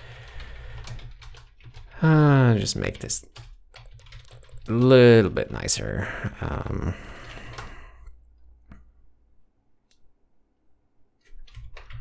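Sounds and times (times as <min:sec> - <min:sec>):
computer keyboard typing: 0:00.0 - 0:05.9, 0:07.1 - 0:07.8, 0:11.2 - 0:12.0.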